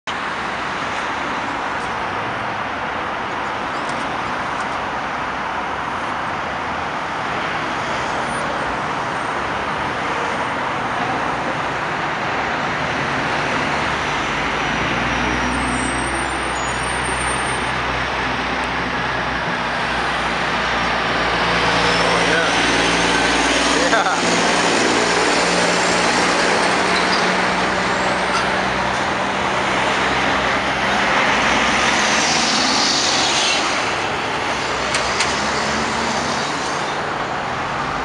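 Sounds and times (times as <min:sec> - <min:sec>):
heavy traffic noise: 0:00.0 - 0:38.0
diesel truck engine rumble: 0:10.6 - 0:38.0.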